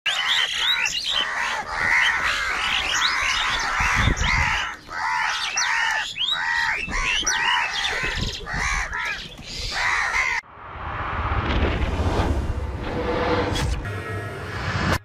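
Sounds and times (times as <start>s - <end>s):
crows cawing: 0.1s - 10.5s.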